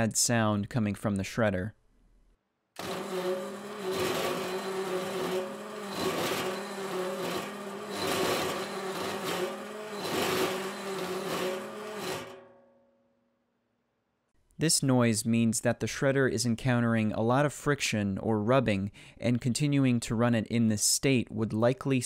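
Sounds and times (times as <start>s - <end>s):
shredder motor humming: 2.8s - 12.5s
harsh metal grinding: 2.8s - 12.6s.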